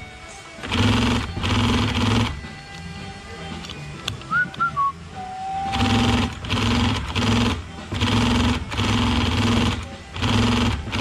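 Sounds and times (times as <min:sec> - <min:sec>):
sewing machine stitching: 0:00.6 - 0:02.3, 0:05.7 - 0:11.0.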